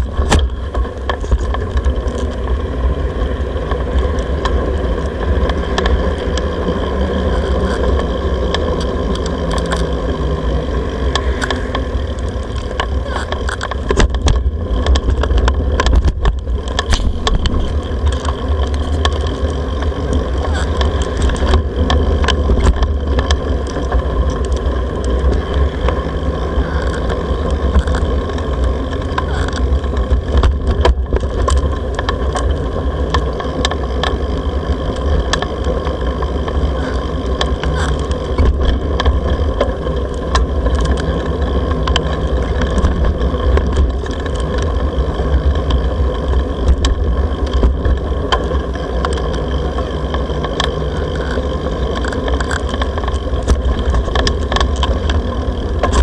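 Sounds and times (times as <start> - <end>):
road traffic: 0.0 - 56.0
wind rumble on microphone: 0.0 - 56.0.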